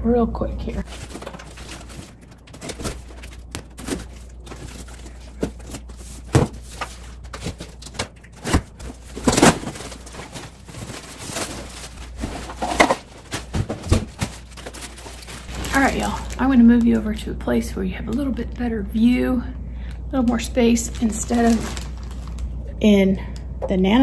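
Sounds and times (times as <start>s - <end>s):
plastic bag rustling: 0.7s - 17.2s, 20.2s - 22.7s.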